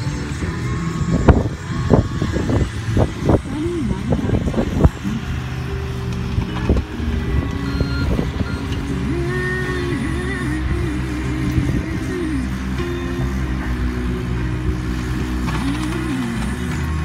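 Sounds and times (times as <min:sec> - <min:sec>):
diesel excavator engine running: 0:00.0 - 0:17.0.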